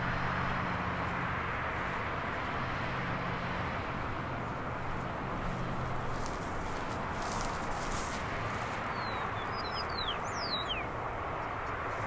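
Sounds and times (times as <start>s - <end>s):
distant road traffic: 0.0s - 12.0s
low engine hum: 0.0s - 12.0s.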